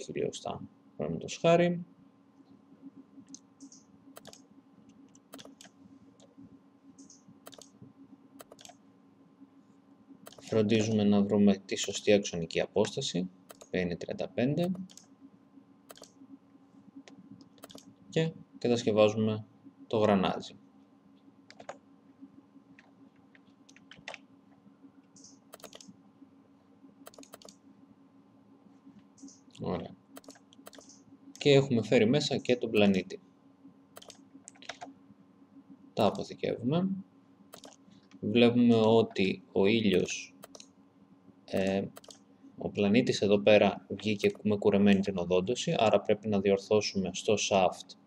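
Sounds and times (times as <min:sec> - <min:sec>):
faint low hum: 0:00.0 - 0:48.0
computer mouse clicks: 0:03.2 - 0:04.5, 0:05.1 - 0:06.3, 0:07.0 - 0:07.8, 0:08.4 - 0:08.8, 0:10.2 - 0:10.9, 0:13.5 - 0:13.8, 0:14.6 - 0:15.1, 0:15.9 - 0:16.2, 0:17.0 - 0:17.9, 0:21.5 - 0:21.8, 0:22.8 - 0:24.2, 0:25.1 - 0:25.9, 0:27.0 - 0:27.6, 0:30.2 - 0:31.5, 0:34.0 - 0:34.9, 0:37.5 - 0:38.2, 0:39.9 - 0:40.8, 0:41.5 - 0:42.2
keyboard keystrokes: 0:03.6 - 0:04.4, 0:05.3 - 0:05.7, 0:07.0 - 0:07.7, 0:08.4 - 0:08.8, 0:10.3 - 0:10.6, 0:15.9 - 0:16.1, 0:17.6 - 0:17.9, 0:25.5 - 0:25.9, 0:27.1 - 0:27.6, 0:30.2 - 0:30.9, 0:37.5 - 0:37.8.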